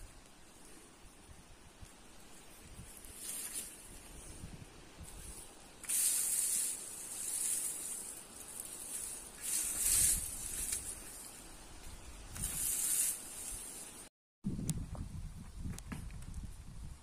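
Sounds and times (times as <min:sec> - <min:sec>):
hissing smoke bursts: 0:05.8 - 0:11.4, 0:12.3 - 0:14.1.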